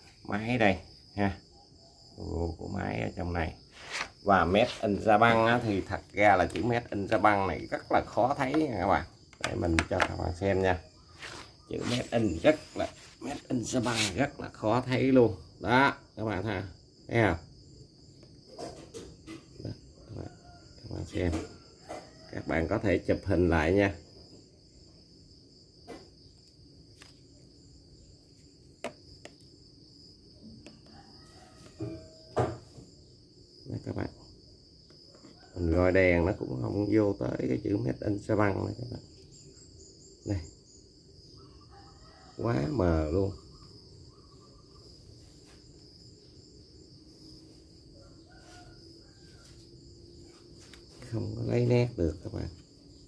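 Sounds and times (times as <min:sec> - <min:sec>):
high-pitched insect trill: 0:00.0 - 0:53.0.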